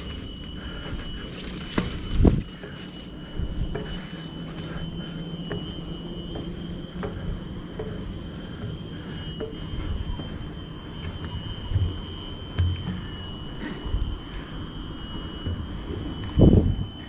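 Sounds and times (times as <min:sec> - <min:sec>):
soft footsteps on trail: 0:00.0 - 0:13.2
forest insects droning: 0:00.0 - 0:17.0.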